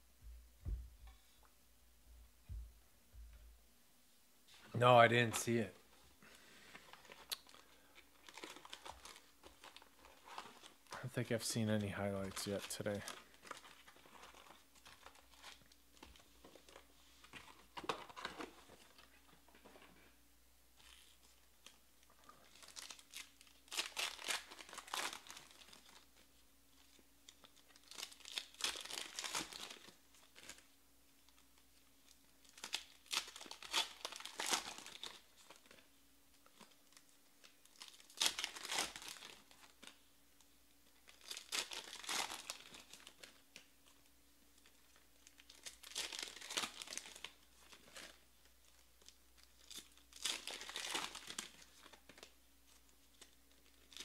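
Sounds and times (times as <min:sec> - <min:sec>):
wrappers torn and crinkled: 0:06.8 - 0:11.0, 0:12.4 - 0:19.1, 0:20.8 - 0:30.7, 0:32.0 - 0:35.8, 0:36.4 - 0:40.1, 0:40.9 - 0:54.0.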